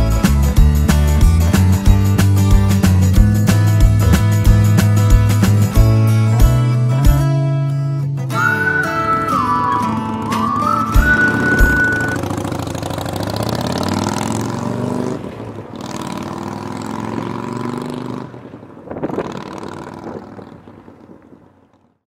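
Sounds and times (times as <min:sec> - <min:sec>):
motorcycle engine pulling away: 0:08.4 - 0:22.0.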